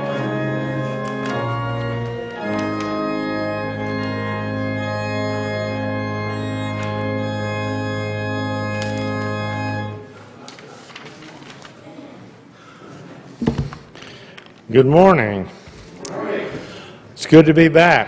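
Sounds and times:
church organ chord: 0.0 - 10.2.

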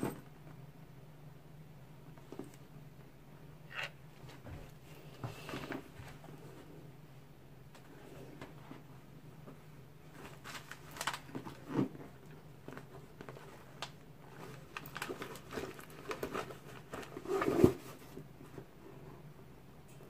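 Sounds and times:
zipper opening: 17.2 - 17.8.

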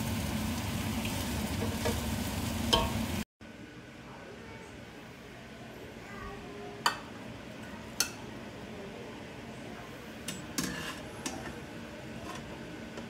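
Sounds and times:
metal spoon clinking on cookware: 2.7 - 3.0.

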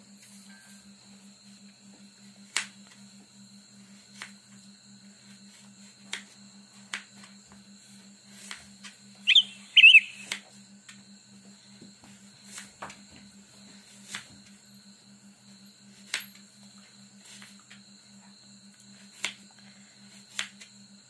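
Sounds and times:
high chirps with bending pitch: 9.3 - 10.3.

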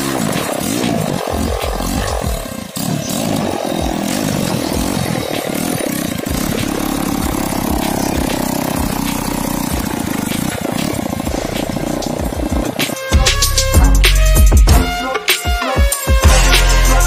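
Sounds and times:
small quad engine running: 0.0 - 14.8, 16.2 - 17.0.

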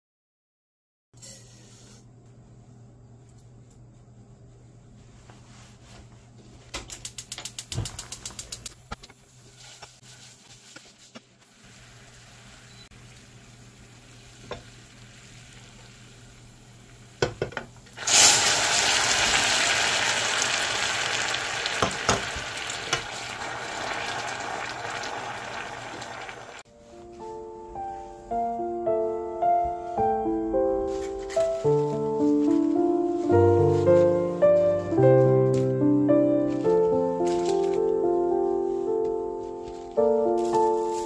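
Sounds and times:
loud sizzle in a pan: 9.5 - 17.2, 18.0 - 26.6.

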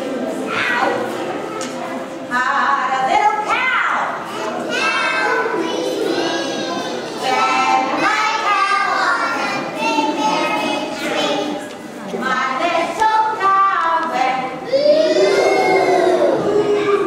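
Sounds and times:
young children singing: 4.1 - 17.0.

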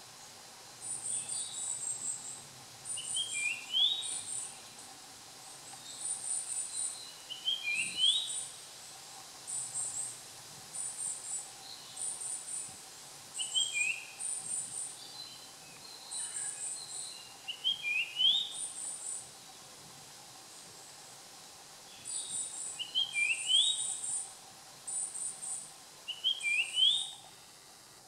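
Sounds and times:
bird whistled song: 2.9 - 4.6, 6.6 - 8.5, 13.4 - 19.2, 22.0 - 24.2, 26.1 - 27.2.

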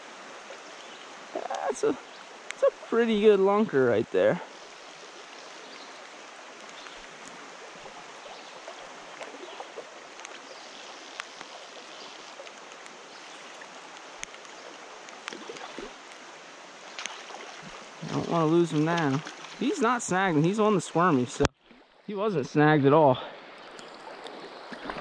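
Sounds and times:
creek current rushing: 0.0 - 25.0
faint sharp ticks: 6.0 - 7.4, 10.1 - 10.5, 11.1 - 16.2.

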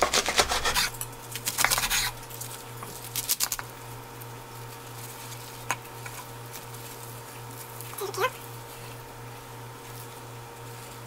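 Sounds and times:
knife cutting on wooden board: 0.0 - 1.0.

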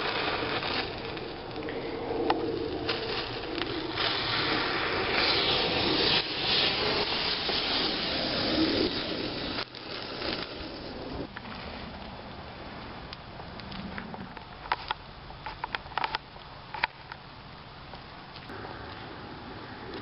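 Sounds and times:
fireworks rushing hiss: 0.0 - 12.0.

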